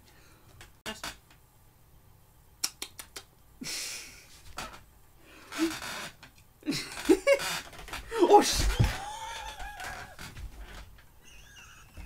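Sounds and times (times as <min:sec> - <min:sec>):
person stifling laughter: 0:06.6 - 0:10.4, 0:11.2 - 0:12.0.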